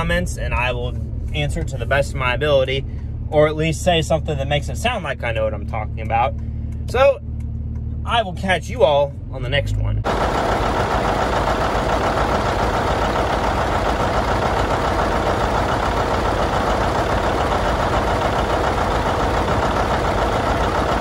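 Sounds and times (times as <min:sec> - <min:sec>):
tractor engine idling: 0:10.0 - 0:21.0.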